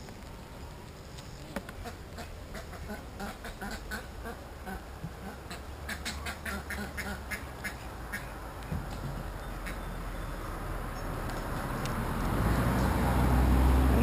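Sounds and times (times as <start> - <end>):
ducks quacking: 1.8 - 8.4.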